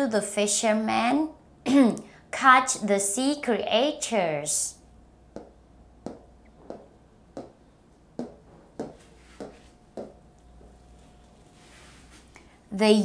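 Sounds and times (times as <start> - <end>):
marker tapping whiteboard: 5.3 - 10.2.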